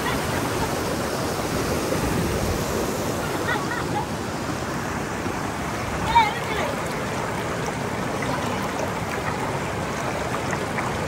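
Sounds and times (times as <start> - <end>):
rushing river water: 0.0 - 11.0.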